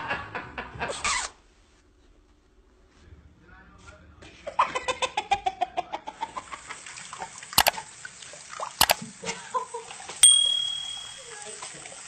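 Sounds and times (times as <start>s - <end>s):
short pulsed sounds falling in pitch: 10.2s - 11.4s.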